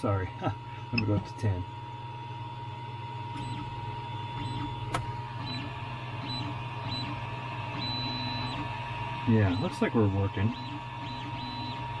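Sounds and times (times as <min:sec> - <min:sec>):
printer humming: 0:00.0 - 0:12.0.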